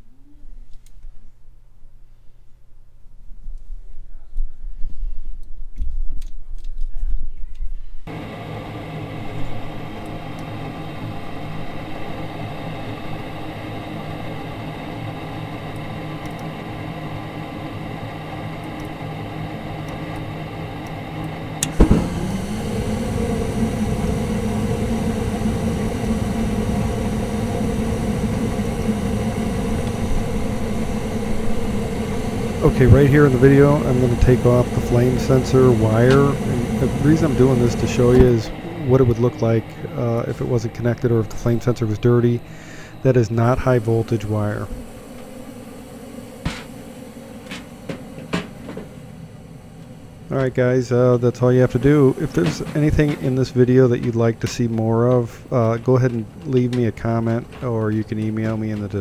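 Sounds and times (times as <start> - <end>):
inducer motor hum: 8.0 - 59.0
gas burner rush: 8.1 - 59.0
burners lighting thump: 19.8 - 45.4, 46.1 - 49.2, 51.6 - 59.0.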